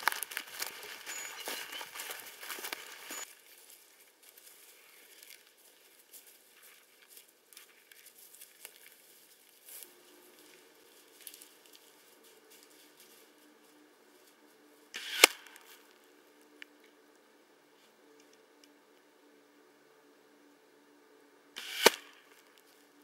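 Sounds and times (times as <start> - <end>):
dry leaves rustling: 0.0 - 16.6.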